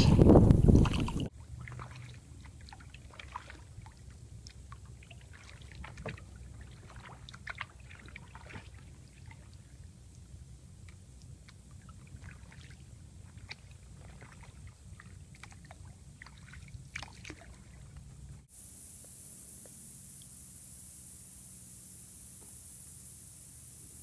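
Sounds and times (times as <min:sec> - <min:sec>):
wind on microphone: 0:00.0 - 0:01.3
canoe paddle dipping in water: 0:00.0 - 0:18.5
water drips and small splashes: 0:00.0 - 0:18.6
low steady rumble: 0:00.0 - 0:24.0.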